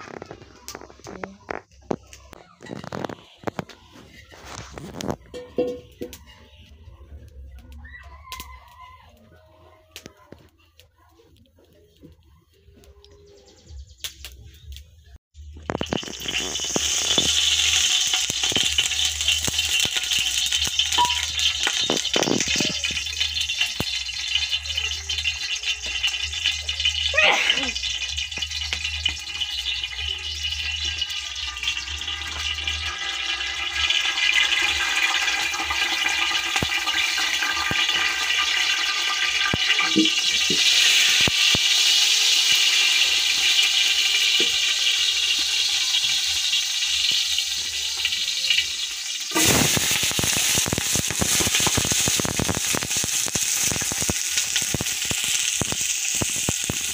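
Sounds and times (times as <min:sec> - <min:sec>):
pot hissing over fire: 0:00.0 - 0:06.8, 0:15.4 - 0:56.9
onions sizzling in hot oil: 0:15.4 - 0:56.9.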